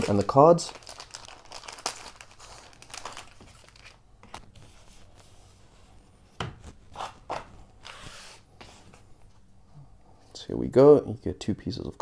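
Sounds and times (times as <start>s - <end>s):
plastic packaging crinkling: 0.0s - 5.2s.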